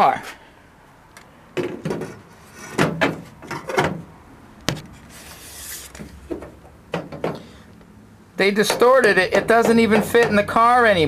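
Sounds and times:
metal frame knocks and clunks: 1.6s - 4.1s, 6.0s - 7.6s, 8.5s - 10.9s
metal scrape: 4.9s - 6.2s.

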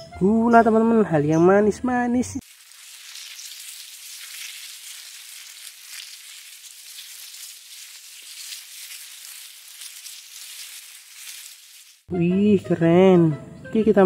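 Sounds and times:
crackling hiss: 2.4s - 12.1s.

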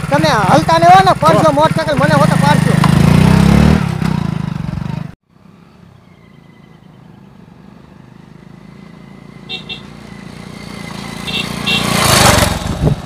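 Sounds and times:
motorcycle engine revving: 0.0s - 5.2s, 8.0s - 13.0s
distant motorcycle engines humming: 0.0s - 13.0s.

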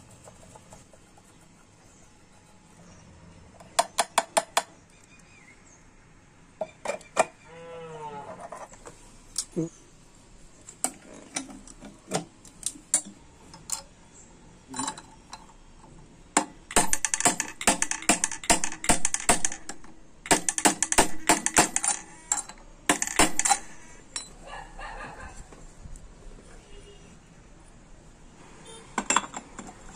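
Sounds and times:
hammer striking metal spanner: 16.4s - 24.4s.

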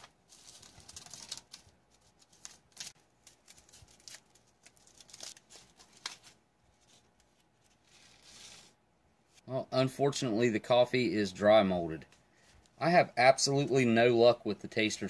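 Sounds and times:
foil pouch crinkling: 0.0s - 8.7s.

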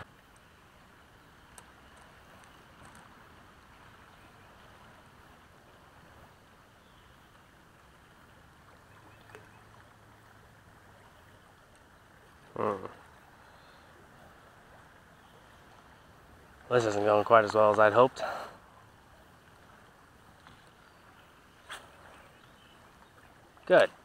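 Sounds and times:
faint outdoor background hiss: 0.0s - 24.0s
faint ticks: 1.4s - 3.2s, 11.6s - 11.9s, 20.3s - 20.9s.

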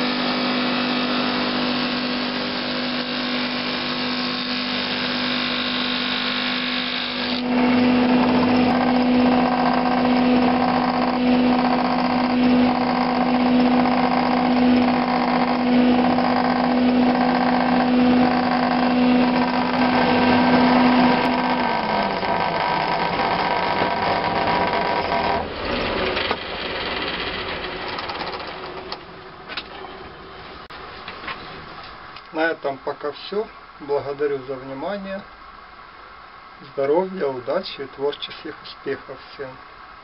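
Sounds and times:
wood panel being sanded: 0.0s - 25.4s
drum sander humming: 0.0s - 29.0s.

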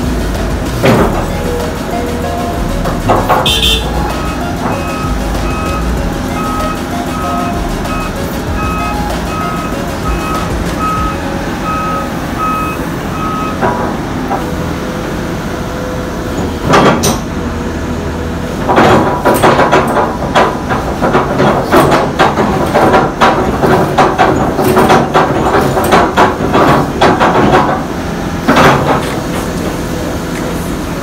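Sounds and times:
excavator running: 0.0s - 31.0s
metallic knocks and clanks: 0.2s - 11.2s, 18.6s - 29.5s
warning alarm beeping: 1.2s - 13.6s.

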